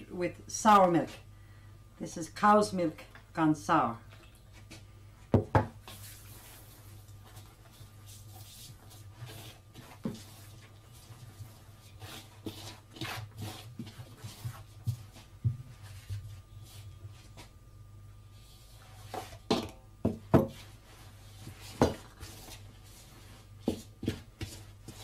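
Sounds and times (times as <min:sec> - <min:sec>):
hand mixing dough: 0:05.8 - 0:17.5, 0:20.2 - 0:25.0.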